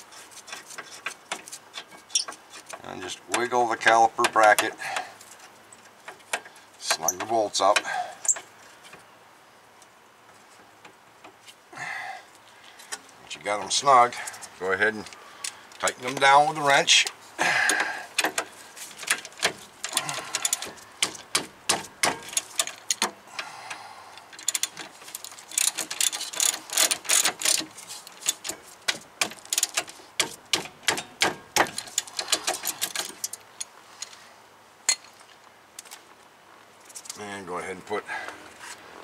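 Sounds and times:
ratchet wrench clicking: 25.5s - 28.6s.

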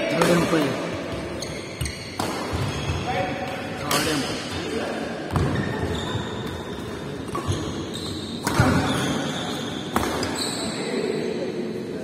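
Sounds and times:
rackets striking shuttlecock: 8.4s - 9.0s, 9.9s - 10.3s.

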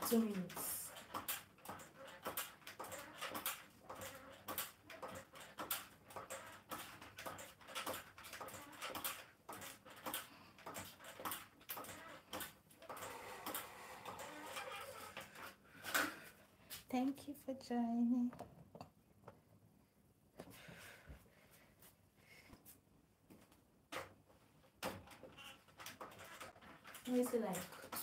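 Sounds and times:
stepper machine clicking and knocking: 0.0s - 15.4s, 24.8s - 28.0s.

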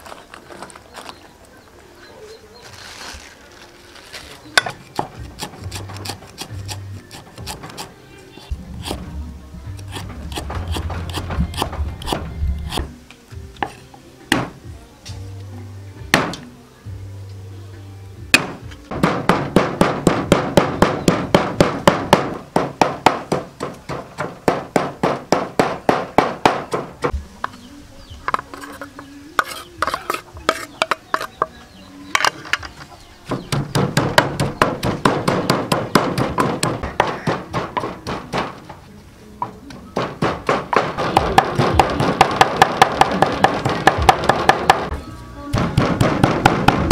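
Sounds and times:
pestle pounding in wooden mortar: 18.4s - 27.2s, 33.3s - 38.7s, 40.0s - 44.9s, 45.5s - 46.9s.

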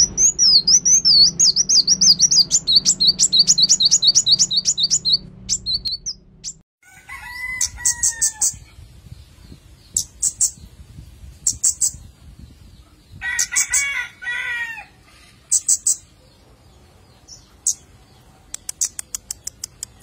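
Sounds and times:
rooster crowing: 6.8s - 8.7s, 13.2s - 15.1s
high sharp bird chips: 18.5s - 20.0s.

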